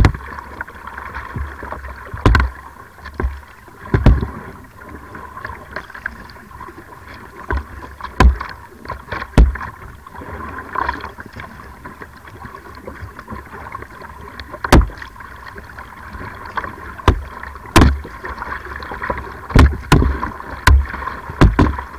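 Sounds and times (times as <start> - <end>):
paddle knocks and slaps: 0.0 - 0.6, 1.2 - 4.5, 7.4 - 9.9, 14.4 - 15.2, 16.1 - 21.9
water sloshing against hull: 0.0 - 21.9.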